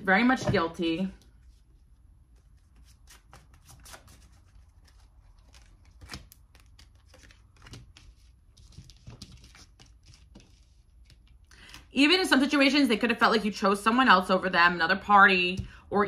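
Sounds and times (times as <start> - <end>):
cards shuffling: 2.4 - 11.8.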